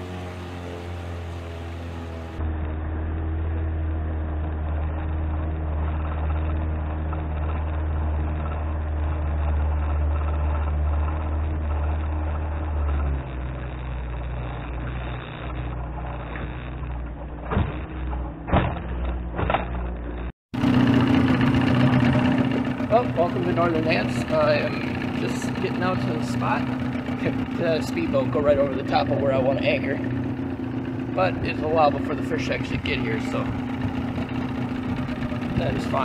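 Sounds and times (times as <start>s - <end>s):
outboard motor running: 0.0s - 36.0s
sharp knocks: 16.3s - 20.0s.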